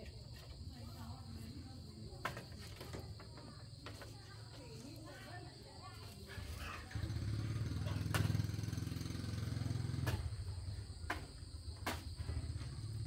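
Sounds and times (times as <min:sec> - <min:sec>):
small engine running: 0:06.5 - 0:10.6, 0:12.2 - 0:13.0.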